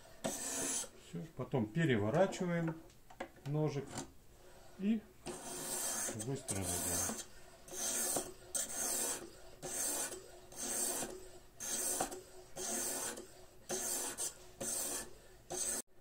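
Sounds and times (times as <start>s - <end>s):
whetstone rasping on knife blade: 5.3s - 15.8s.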